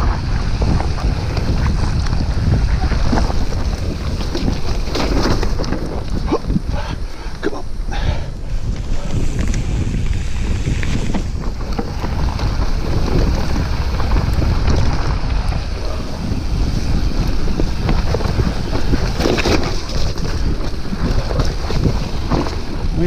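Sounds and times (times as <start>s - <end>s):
bike rattling and knocking: 0.0s - 6.7s, 8.7s - 23.0s
bike tyres rolling on dirt: 0.0s - 23.0s
wind buffeting the microphone: 0.0s - 23.0s.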